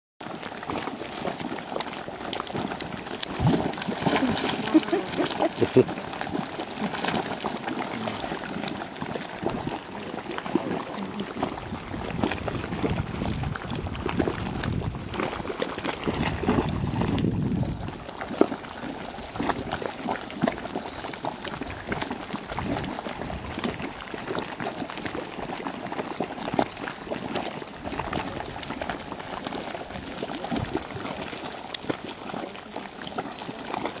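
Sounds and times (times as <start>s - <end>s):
hot pool bubbling and popping: 0.2s - 34.0s.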